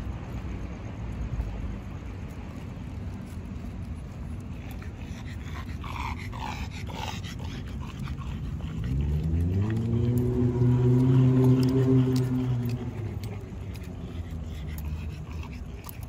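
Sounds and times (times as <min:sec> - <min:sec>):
low steady rumble: 0:00.0 - 0:16.0
low motor hum rising: 0:07.6 - 0:15.3.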